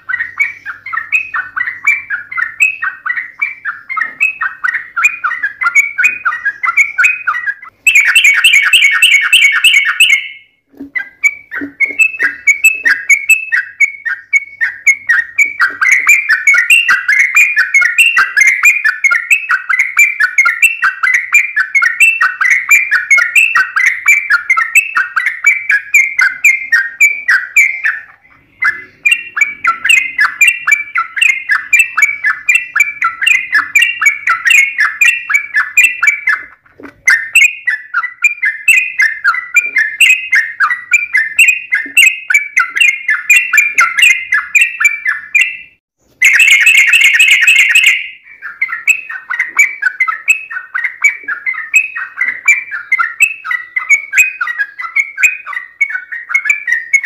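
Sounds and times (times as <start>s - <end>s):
bulbul bubbly chattering song: 0.0s - 57.0s
harsh bird call burst: 46.2s - 48.5s.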